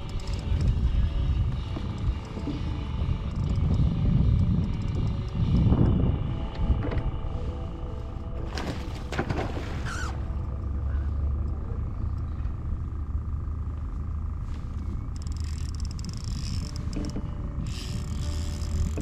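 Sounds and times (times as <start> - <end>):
fishing reel drag buzzing: 0.0 - 1.1, 3.1 - 5.6, 9.8 - 10.4, 14.4 - 19.0
thin steady whine: 0.0 - 9.1, 9.8 - 19.0
low rumble: 0.0 - 19.0.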